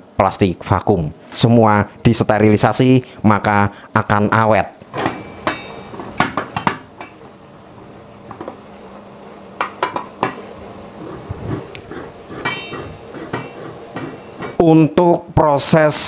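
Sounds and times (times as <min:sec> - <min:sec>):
metal lid clanks and clinks: 0:05.0 - 0:05.9, 0:12.4 - 0:13.6.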